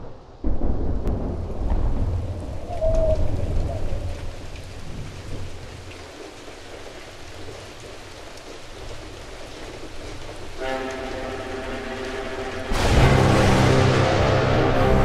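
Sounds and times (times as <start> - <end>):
deep thunder-like rumble: 0.0 - 5.8, 12.7 - 15.0
faint crackles: 0.0 - 11.1
steady hiss like rain: 0.0 - 15.0.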